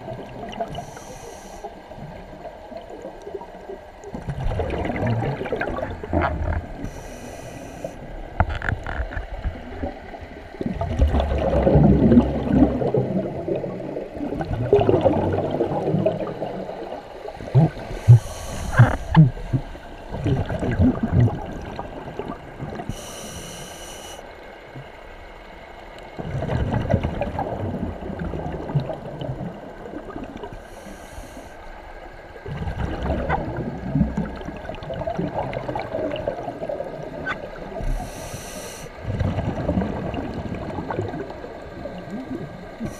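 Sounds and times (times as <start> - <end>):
regulator inhale hiss: 0.7 - 1.9, 6.8 - 8.1, 17.8 - 19.8, 22.9 - 24.4, 30.6 - 31.8, 37.8 - 39.0
exhale bubbling rumble: 2.0 - 7.2, 8.0 - 23.0, 26.1 - 30.6, 32.4 - 38.3, 39.0 - 42.9.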